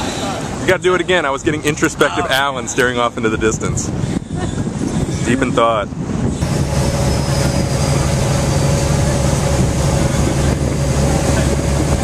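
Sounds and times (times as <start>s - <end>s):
rushing wind noise: 0.0s - 12.0s
engine droning: 5.1s - 12.0s.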